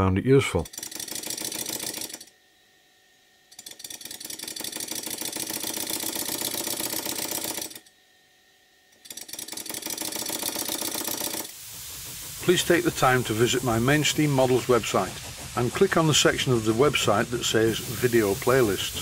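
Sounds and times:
model steam engine exhaust beating: 3.6s - 7.8s, 9.0s - 19.0s.

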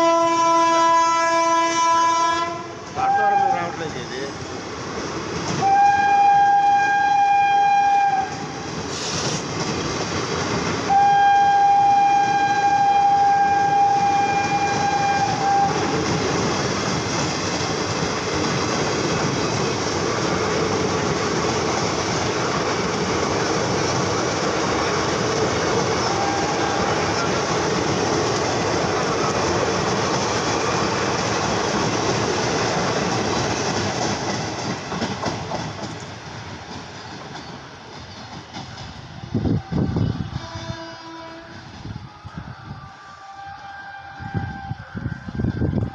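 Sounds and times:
locomotive horn blasts: 0.0s - 3.6s, 5.6s - 8.4s, 10.9s - 16.0s, 26.0s - 27.3s, 39.5s - 42.3s, 42.9s - 45.0s
passenger coaches rolling past: 0.0s - 45.9s.

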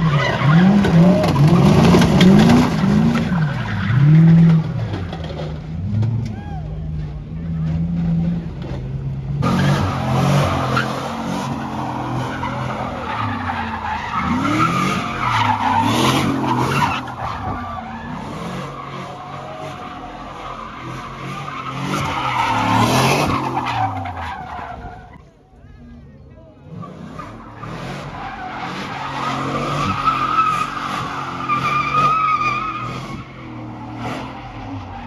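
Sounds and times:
tyres screeching: 9.4s - 25.3s, 26.7s - 35.0s.

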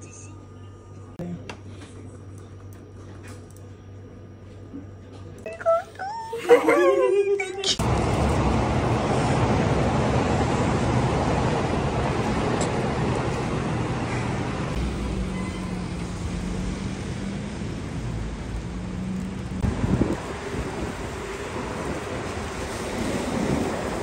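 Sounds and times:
street traffic rumble: 7.6s - 24.0s
wind on microphone: 19.6s - 24.0s.

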